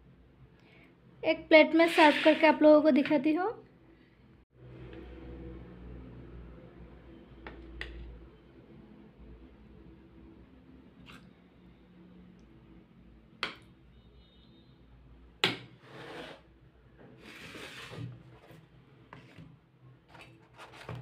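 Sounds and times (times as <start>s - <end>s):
spoon scraping and rubbing: 1.8s - 2.6s, 15.8s - 16.5s, 17.2s - 21.0s.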